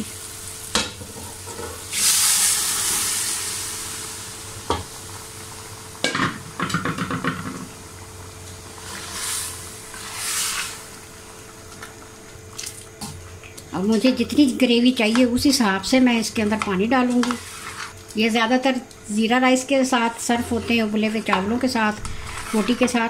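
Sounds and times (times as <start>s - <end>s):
food sizzling in hot oil: 0.0s - 12.2s, 15.5s - 18.0s
spatula scraping metal pan: 17.0s - 18.0s, 20.2s - 23.0s.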